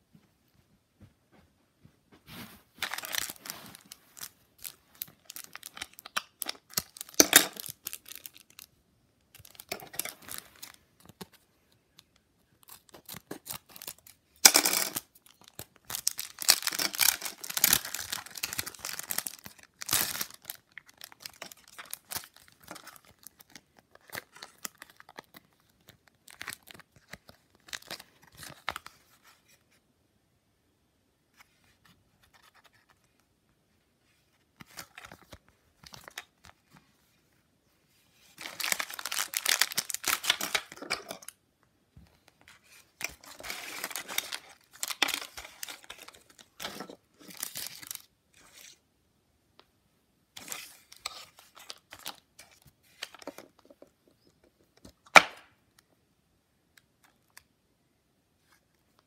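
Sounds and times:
plastic wrapping crinkling and tearing: 2.7s - 8.7s, 14.9s - 28.9s, 38.4s - 41.4s, 42.6s - 48.7s.

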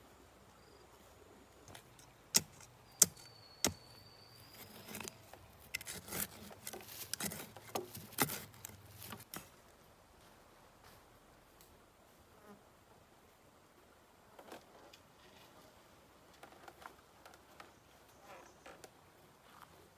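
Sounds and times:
bamboo cracks and rustles: 4.5s - 9.6s.

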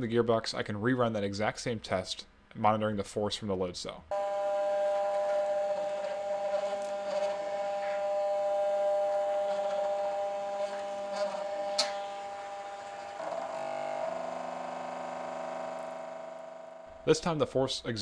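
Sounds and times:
stepper motor gearbox whine: 4.1s - 17.4s.

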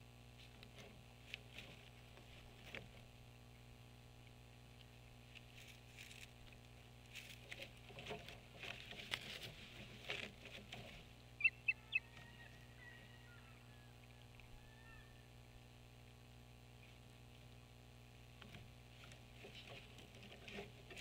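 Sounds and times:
twigs rustling and crackling: 0.4s - 3.1s, 4.2s - 12.3s
osprey chirps: 11.4s - 15.2s.

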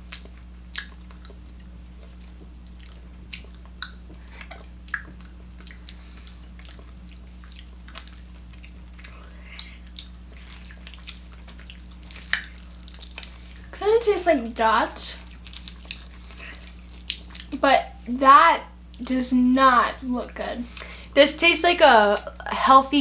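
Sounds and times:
people chewing gummy candy: 0.0s - 13.8s, 15.1s - 18.1s
steady low hum: 0.0s - 23.0s.

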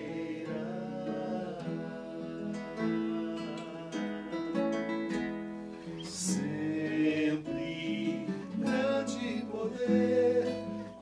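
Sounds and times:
person singing: 0.0s - 4.6s, 6.0s - 11.0s
acoustic guitar chords: 0.0s - 11.0s.

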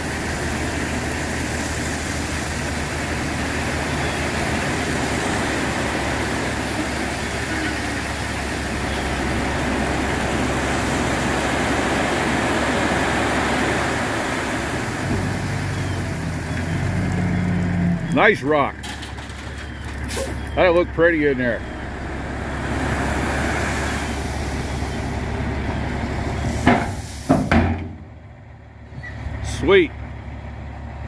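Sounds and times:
gravel pouring out of dump truck: 0.0s - 17.4s, 18.7s - 20.4s, 22.6s - 27.6s
diesel engine running: 0.0s - 31.0s.

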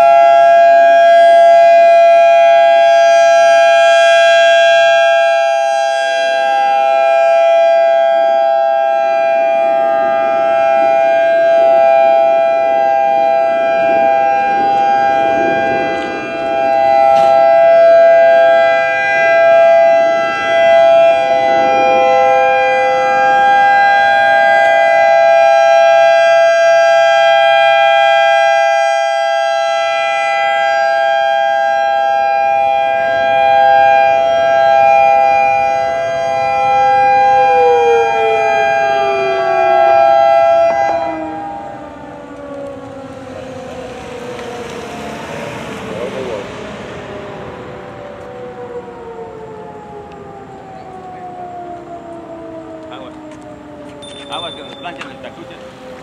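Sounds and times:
electronic siren alert tone: 0.0s - 56.0s.

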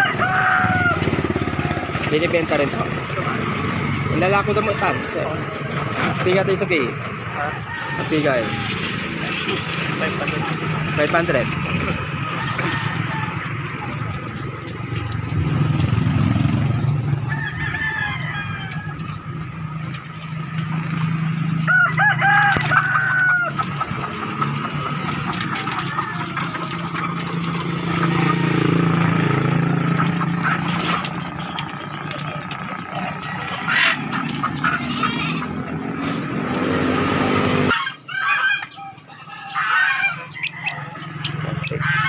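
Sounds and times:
rooster crowing: 0.0s - 2.0s, 7.2s - 9.2s, 12.2s - 14.0s, 17.1s - 19.3s, 21.6s - 23.9s, 25.5s - 26.9s, 27.9s - 29.0s, 32.9s - 34.4s, 37.7s - 42.0s
chicken clucks: 0.0s - 15.9s, 16.6s - 42.0s.

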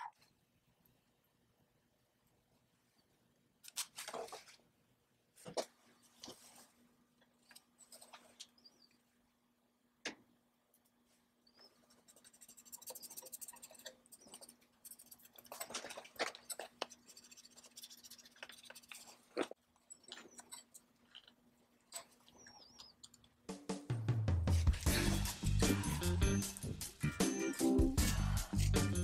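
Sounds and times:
faint steady hum: 0.0s - 23.5s
fingers rubbing paper decal: 12.1s - 15.5s.

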